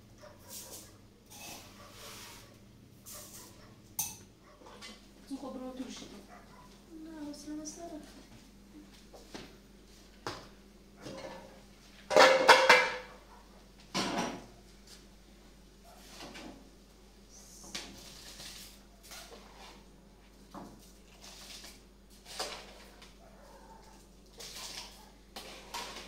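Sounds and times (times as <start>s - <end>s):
metal pots and utensils clanking: 1.3s - 1.8s, 4.0s - 5.0s, 11.1s - 13.1s, 24.4s - 26.0s.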